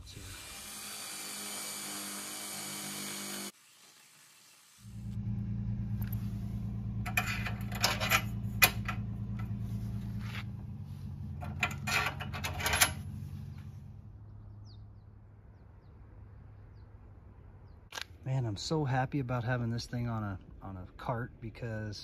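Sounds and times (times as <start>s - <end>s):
steady low hum: 4.8s - 17.8s
metal bolts clicking and rattling: 7.1s - 9.5s, 11.4s - 13.1s.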